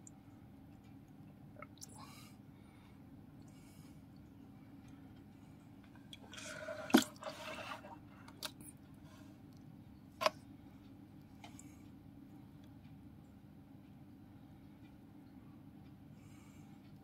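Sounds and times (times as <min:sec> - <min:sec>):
water dripping: 0:00.0 - 0:02.1, 0:05.8 - 0:08.7
water splashing in a tub: 0:06.1 - 0:08.6.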